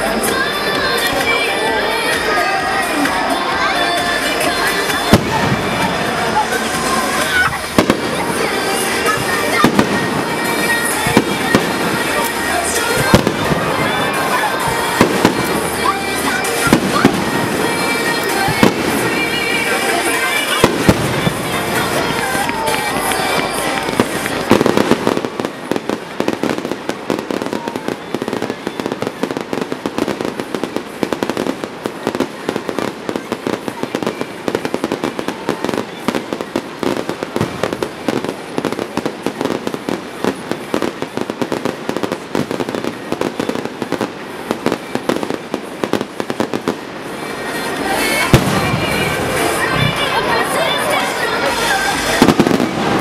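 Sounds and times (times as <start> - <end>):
fireworks crackling: 0.0 - 53.0.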